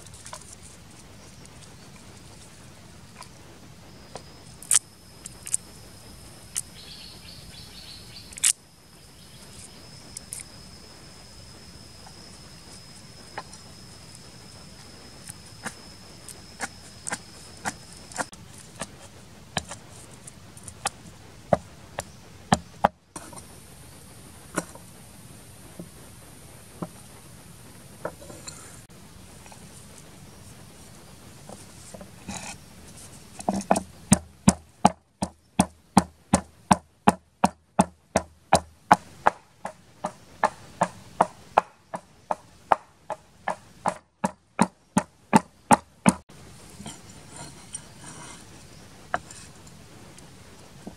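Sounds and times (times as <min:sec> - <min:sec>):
insect trilling: 0:00.0 - 0:25.0.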